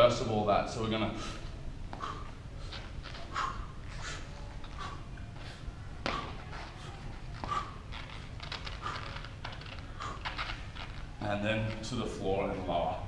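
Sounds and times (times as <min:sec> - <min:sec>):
low room hum: 0:00.0 - 0:13.0
man breathing hard: 0:01.0 - 0:10.6.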